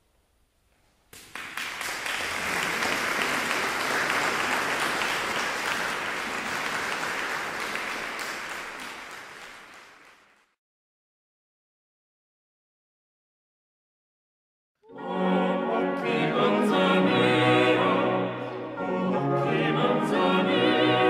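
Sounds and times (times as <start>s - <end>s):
hands clapping: 1.1s - 10.6s.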